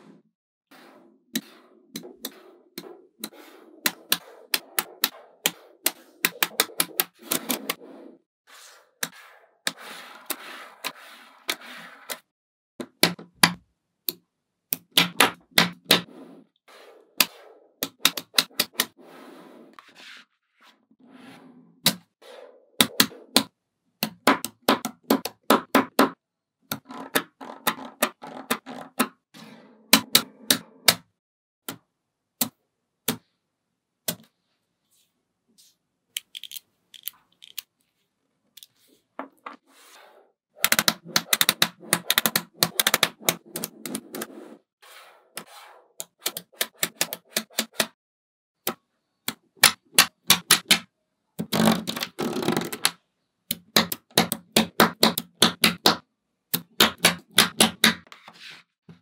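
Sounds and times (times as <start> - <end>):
magnetic balls clicking together: 36.2 - 37.7.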